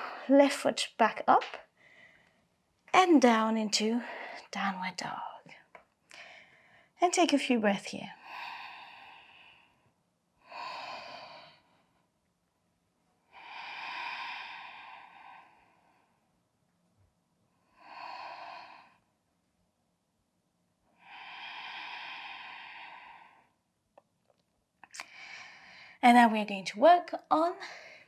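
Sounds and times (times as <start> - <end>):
woman breathing deeply: 1.7 - 2.5, 6.1 - 7.0, 8.2 - 12.0, 13.2 - 16.3, 17.6 - 19.2, 20.9 - 23.7, 25.0 - 26.0.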